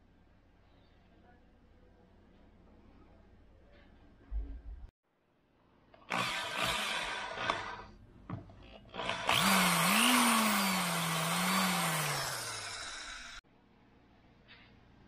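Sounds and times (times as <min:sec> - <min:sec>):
impact drill boring into wall: 0:06.1 - 0:07.9, 0:08.9 - 0:13.4.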